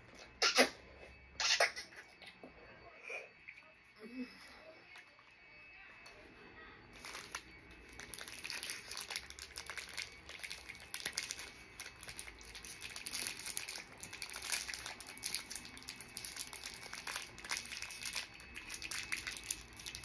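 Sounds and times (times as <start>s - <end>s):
plastic wrapper crinkling: 6.9s - 20.0s.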